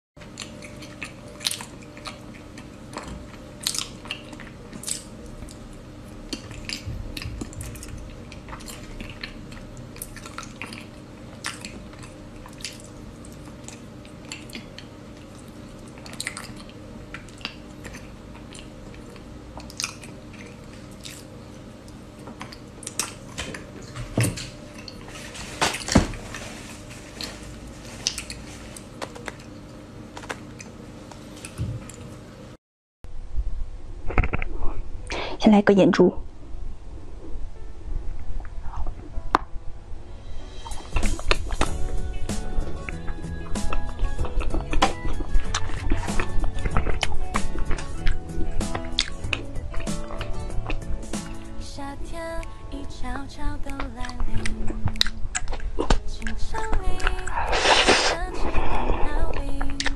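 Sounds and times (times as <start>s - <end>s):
biting and chewing chocolate: 0.2s - 26.2s, 40.7s - 51.5s, 53.6s - 59.9s.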